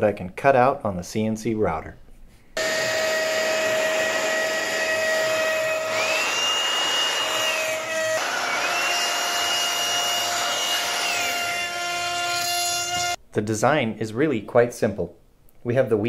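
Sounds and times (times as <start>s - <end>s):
vacuum hose rush of air: 2.6s - 8.9s
higher tone rising and falling: 2.6s - 11.4s
router spindle cutting wood: 2.6s - 13.2s.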